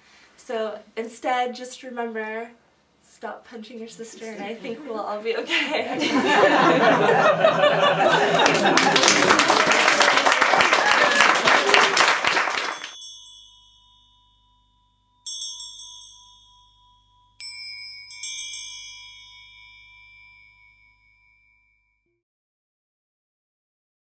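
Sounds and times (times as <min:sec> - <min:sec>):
bell-like chimes ringing: 0:12.6 - 0:22.0.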